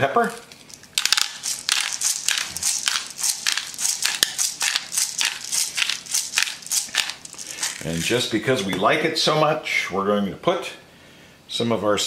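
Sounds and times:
pepper mill grinding: 0.1s - 8.5s.

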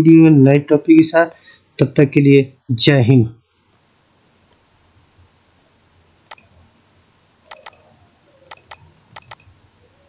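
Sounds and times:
computer mouse clicking: 6.3s - 6.5s, 7.5s - 7.8s, 8.4s - 9.5s.

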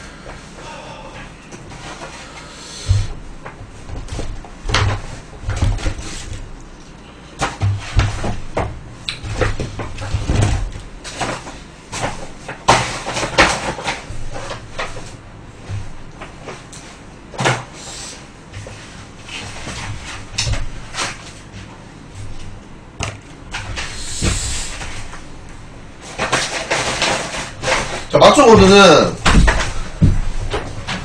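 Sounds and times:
dull knocks: 28.4s - 31.0s.

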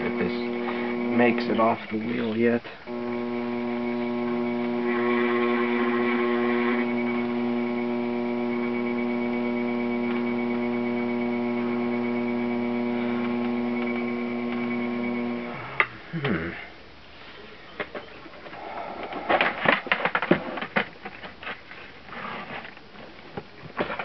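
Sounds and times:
potter's wheel motor humming: 0.0s - 16.3s.

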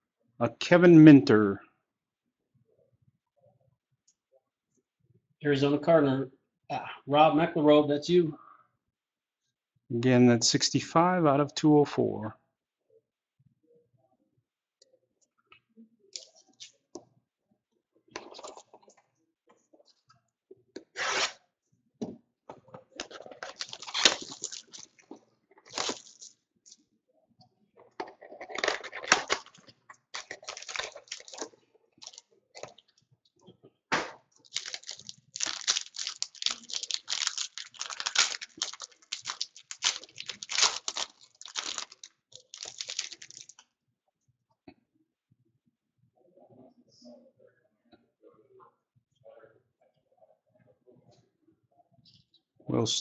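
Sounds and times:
card pack tearing and crinkling: 23.4s - 25.0s, 25.7s - 26.3s, 28.5s - 32.2s, 34.4s - 43.6s.

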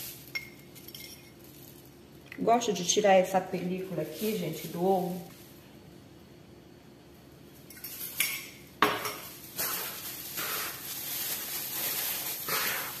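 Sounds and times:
hand mixing food swishes: 9.5s - 13.0s.

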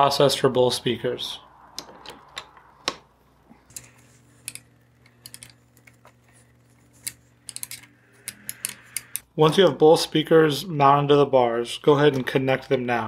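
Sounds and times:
hand tools clicking and tapping: 7.0s - 9.2s.

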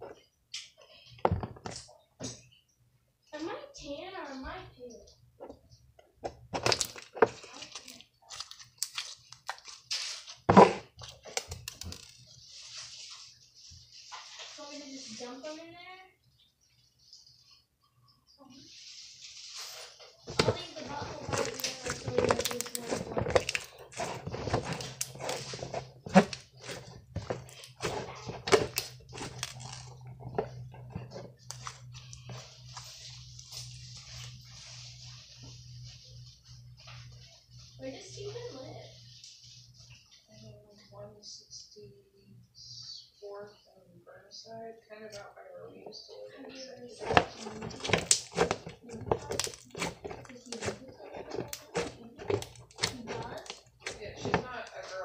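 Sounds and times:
slime squishing with wet pops: 6.4s - 12.2s, 20.3s - 32.9s, 47.0s - 54.8s.

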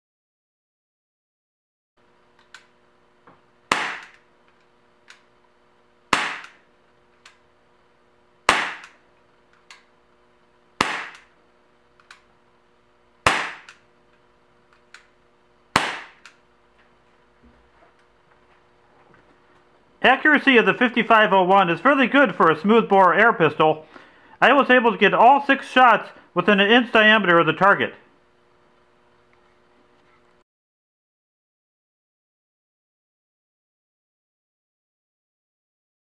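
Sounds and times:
pistol shots: 3.7s - 4.2s, 6.1s - 6.6s, 8.4s - 9.0s, 10.8s - 11.3s, 13.2s - 13.8s, 15.7s - 16.2s.

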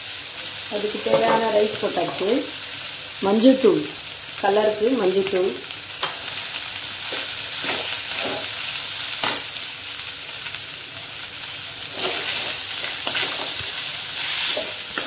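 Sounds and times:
hot oil sizzling: 0.0s - 15.0s
metal spatula scraping pan: 0.8s - 2.3s.

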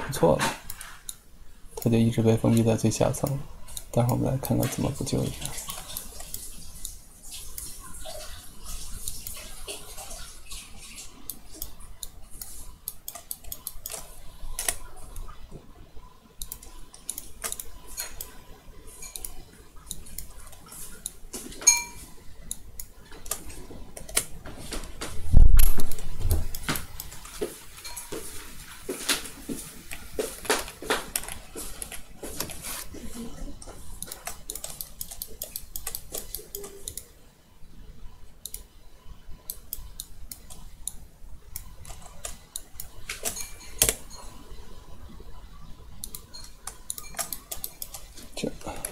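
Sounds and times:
mouse and keyboard clicks: 16.4s - 18.3s, 34.0s - 37.1s, 46.0s - 48.1s.

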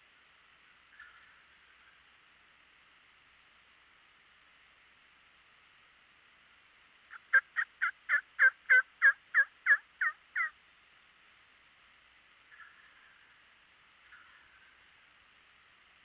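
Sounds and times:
faint steady hiss: 0.0s - 16.0s
turkey yelps: 7.1s - 10.5s.

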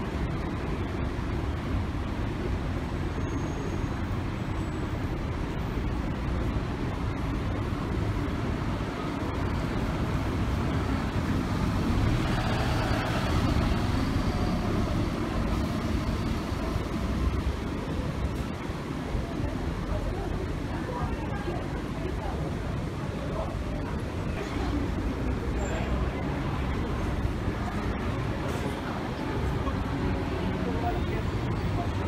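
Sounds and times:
bus driving past: 0.0s - 20.3s
low traffic rumble: 0.0s - 32.0s.

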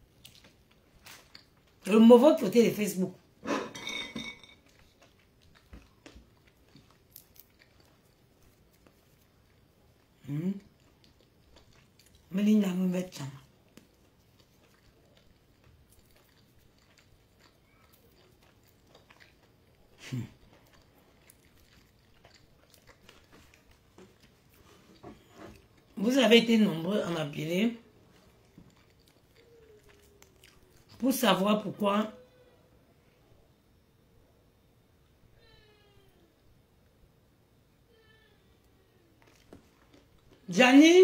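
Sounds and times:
person chewing peanuts: 0.0s - 1.8s, 4.2s - 12.4s, 13.3s - 26.0s, 27.2s - 31.0s, 39.1s - 40.5s.

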